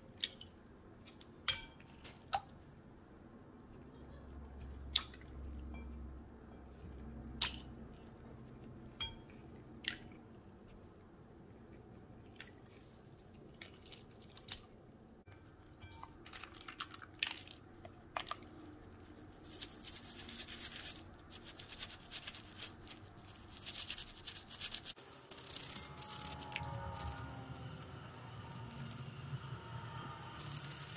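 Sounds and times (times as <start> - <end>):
toothbrush scrubbing plastic: 17.8 - 29.0.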